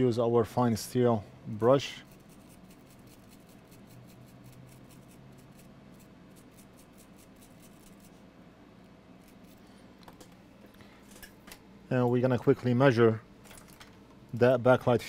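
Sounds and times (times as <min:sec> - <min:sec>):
low steady hum: 0:00.0 - 0:15.0
steel brush scratching: 0:01.8 - 0:08.2.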